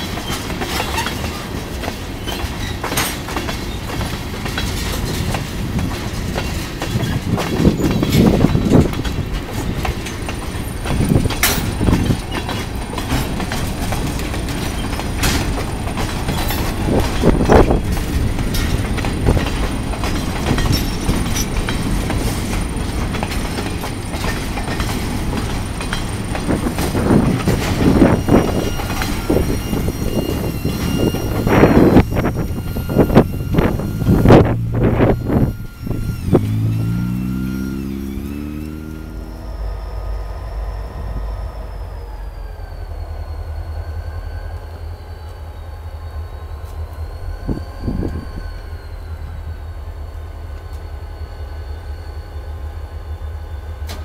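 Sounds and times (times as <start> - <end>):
high wheel squeal: 0.0 - 4.0, 6.4 - 53.9
train wheels clattering over rails: 0.0 - 40.3
heavy train clunks: 0.0 - 54.0.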